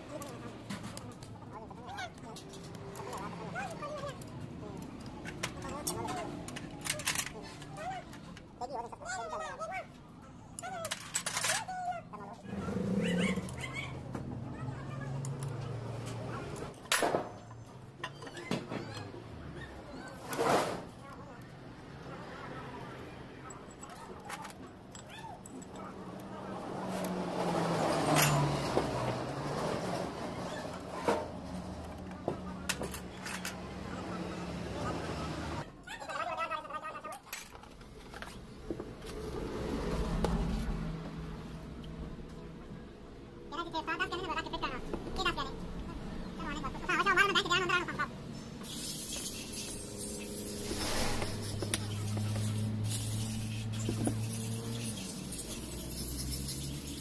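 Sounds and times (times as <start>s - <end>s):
metal tools clinking on pulley: 2.1s - 8.4s, 10.5s - 11.8s, 32.7s - 33.6s, 48.6s - 57.0s.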